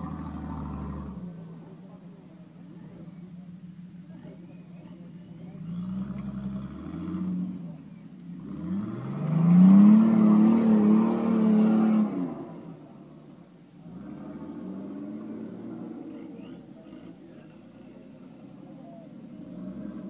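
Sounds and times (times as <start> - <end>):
suv engine revving hard: 5.6 - 12.8, 13.8 - 16.3.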